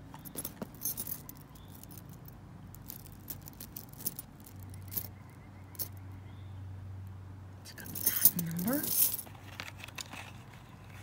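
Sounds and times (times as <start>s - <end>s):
metal jewelry clinking: 0.0s - 6.1s, 7.7s - 9.6s
low steady hum: 0.0s - 11.0s.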